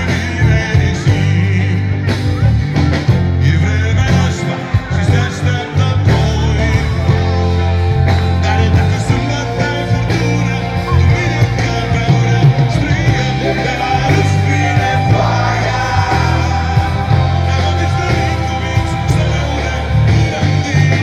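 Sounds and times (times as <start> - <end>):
bass: 0.0 - 21.0
drums: 0.0 - 21.0
electric guitars: 0.0 - 21.0
keyboards: 0.0 - 21.0
lead singer: 0.0 - 21.0.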